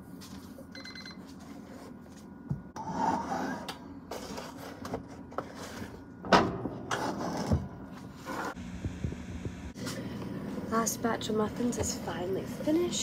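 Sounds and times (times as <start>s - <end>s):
low hum: 8.6s - 11.3s.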